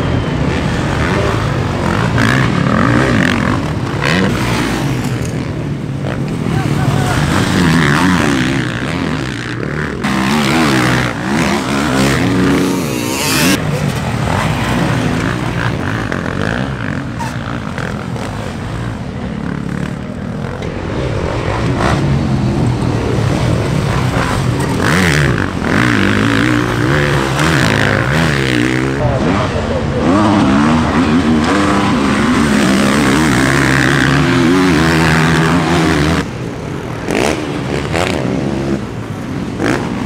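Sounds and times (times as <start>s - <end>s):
motocross bike engines revving: 0.0s - 40.0s.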